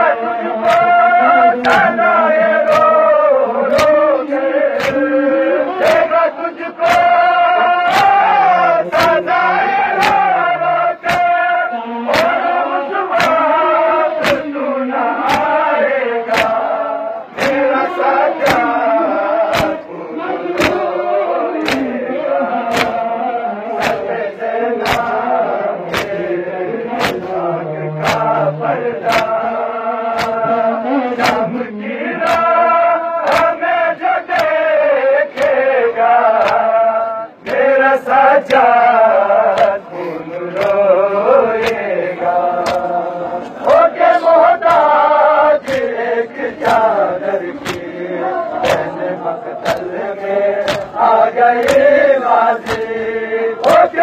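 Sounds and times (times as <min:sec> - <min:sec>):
men chanting in unison: 0:00.0 - 0:54.0
hands slapping bare chests: 0:00.6 - 0:04.0, 0:04.7 - 0:06.1, 0:06.8 - 0:09.2, 0:09.9 - 0:11.4, 0:12.1 - 0:15.6, 0:16.3 - 0:16.8, 0:17.4 - 0:17.7, 0:18.3 - 0:18.8, 0:19.4 - 0:21.0, 0:21.6 - 0:22.0, 0:22.6 - 0:23.2, 0:23.8 - 0:26.3, 0:26.9 - 0:27.4, 0:28.0 - 0:28.4, 0:29.0 - 0:29.4, 0:30.0 - 0:30.6, 0:31.2 - 0:31.5, 0:32.2 - 0:33.6, 0:34.3 - 0:36.8, 0:37.4 - 0:43.0, 0:43.6 - 0:54.0.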